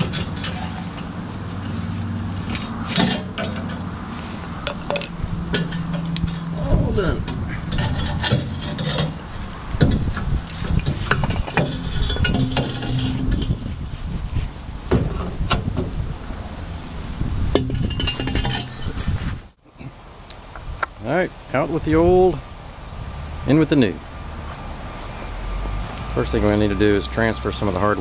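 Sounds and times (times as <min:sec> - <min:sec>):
metal clinks and knocks: 0:04.6 - 0:06.5, 0:09.8 - 0:13.6, 0:17.6 - 0:19.0.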